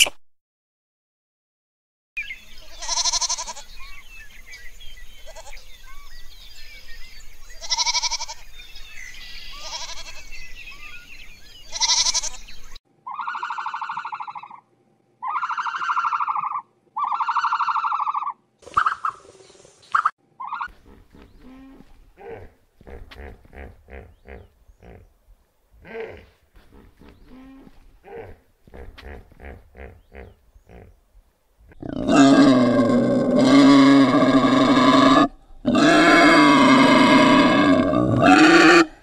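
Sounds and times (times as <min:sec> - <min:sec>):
pitched animal calls: 0:13.0 - 0:14.6, 0:15.2 - 0:19.2, 0:20.0 - 0:25.0, 0:31.7 - 0:39.0.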